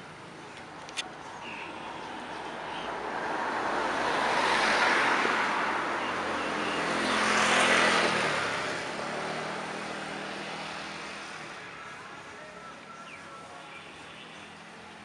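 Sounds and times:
traffic passing by: 0:00.0 - 0:15.0
engine passing by: 0:01.7 - 0:12.0.

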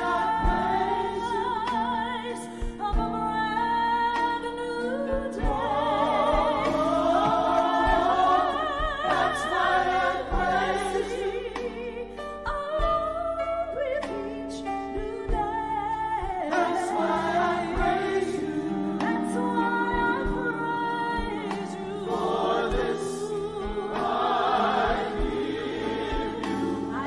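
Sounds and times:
choir singing in harmony: 0:00.0 - 0:02.6, 0:04.8 - 0:12.3, 0:16.2 - 0:27.0.

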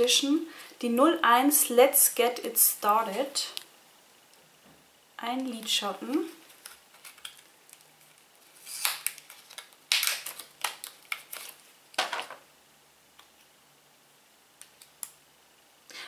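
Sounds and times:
plastic pouch crinkling: 0:05.4 - 0:12.4.

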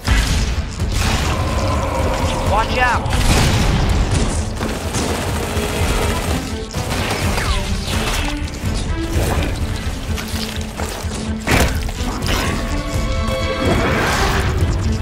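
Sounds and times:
crashing explosions: 0:00.0 - 0:08.1
dramatic soundtrack music: 0:00.0 - 0:15.0
rapid gunfire: 0:03.1 - 0:08.4.

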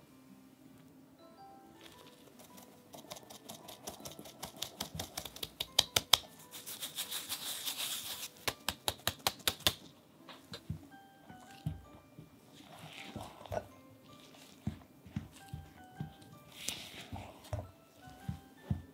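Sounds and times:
soft rustle: 0:06.3 - 0:08.4, 0:12.4 - 0:18.9.

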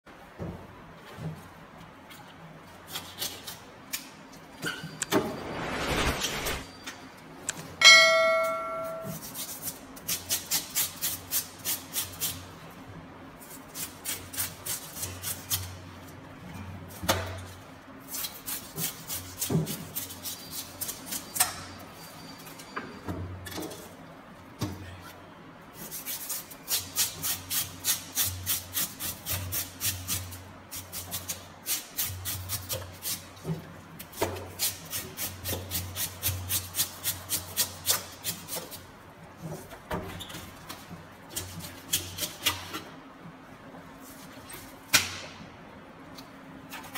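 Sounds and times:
knife scraping fish: 0:02.8 - 0:03.6, 0:09.1 - 0:12.4, 0:13.4 - 0:15.7, 0:18.0 - 0:21.4, 0:25.8 - 0:33.3
bright metallic ring: 0:07.8 - 0:09.5.

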